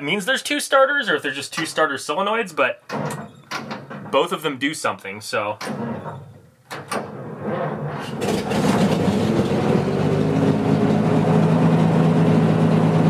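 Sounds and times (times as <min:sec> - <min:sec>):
truck engine cranking and idling: 0:02.8 - 0:04.3, 0:05.6 - 0:13.0.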